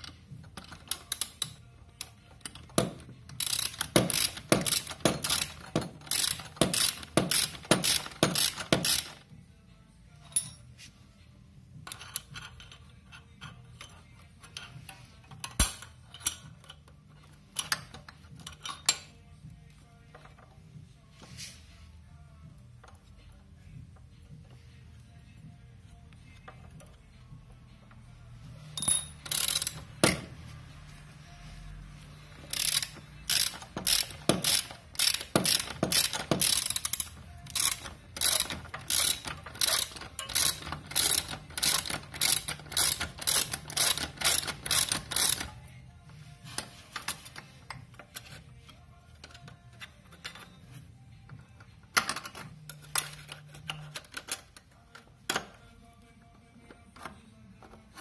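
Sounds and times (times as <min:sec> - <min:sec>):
ratchet wrench clicking: 0:00.0 - 0:09.3, 0:11.8 - 0:19.2, 0:28.8 - 0:30.4, 0:32.3 - 0:45.8.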